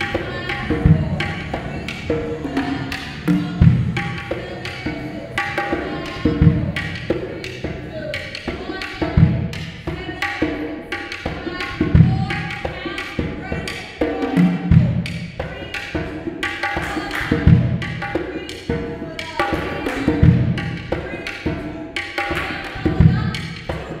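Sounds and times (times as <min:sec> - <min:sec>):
deep bass drum stroke: 0:00.0 - 0:05.0.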